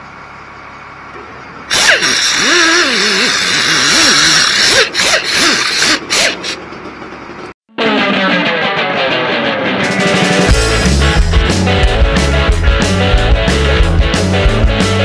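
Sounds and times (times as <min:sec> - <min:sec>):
air ratchet hissing and whining: 0:01.7 - 0:06.7.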